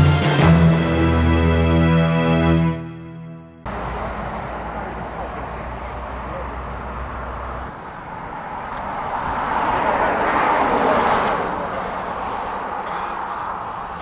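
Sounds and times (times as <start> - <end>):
steady traffic noise: 3.2 - 14.0
car passing: 3.6 - 14.0.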